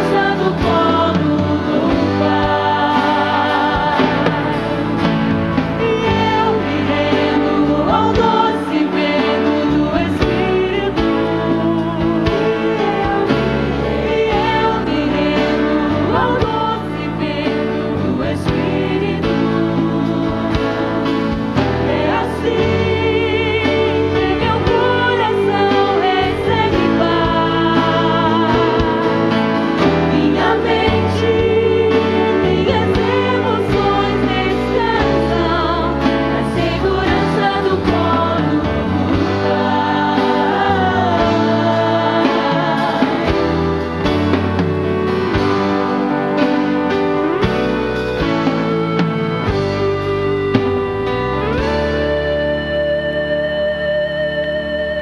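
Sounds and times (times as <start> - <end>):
band accompaniment: 0.0 - 55.0
voices singing worship song: 0.0 - 55.0.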